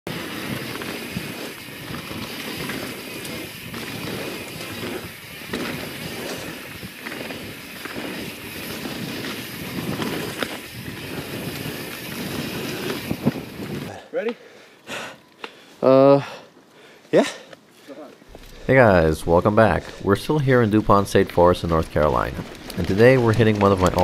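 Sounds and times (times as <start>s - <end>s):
tyres rolling on dirt: 0.1s - 14.1s, 18.3s - 24.0s
bike knocks and rattles: 0.2s - 13.9s
wind on microphone: 8.8s - 13.9s.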